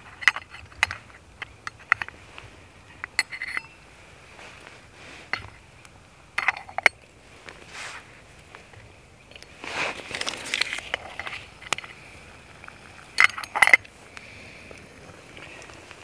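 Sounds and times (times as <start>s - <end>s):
metal kettle lid clinking: 13.2s - 13.8s.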